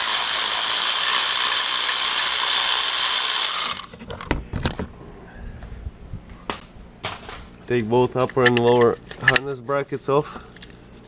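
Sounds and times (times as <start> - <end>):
power ratchet spinning: 0.0 - 3.9
tool clicks and knocks: 8.2 - 9.6.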